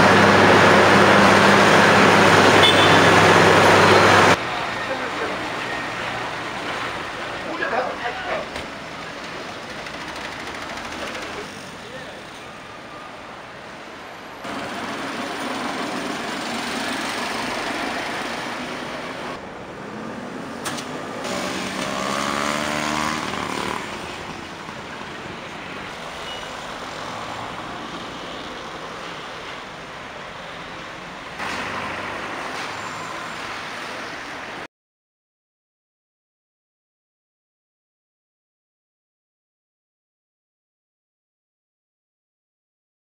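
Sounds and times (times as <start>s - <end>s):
cars and vans passing: 0.0s - 34.7s
vehicle engine accelerating: 14.4s - 25.0s.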